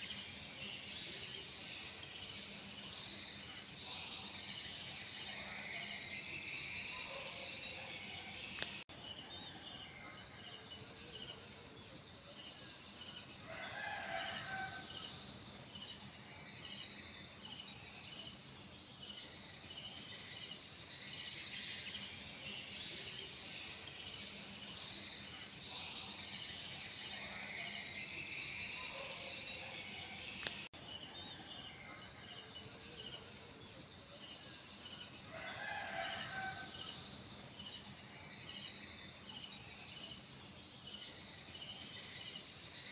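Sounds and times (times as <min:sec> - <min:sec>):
crickets chirping: 0:00.0 - 0:42.9
rooster crowing: 0:13.5 - 0:14.9, 0:35.3 - 0:36.8.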